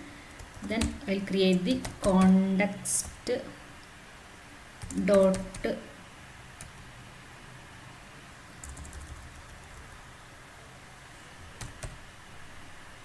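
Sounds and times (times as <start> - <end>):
keyboard typing: 0.3 - 3.2, 4.8 - 5.8, 8.6 - 10.0, 11.5 - 12.0.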